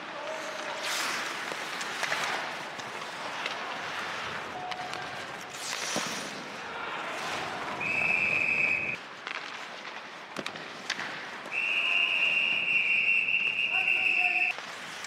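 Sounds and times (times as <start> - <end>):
arena noise: 0.0 - 10.2, 10.9 - 14.6
referee's whistle: 7.8 - 9.0, 11.5 - 14.5.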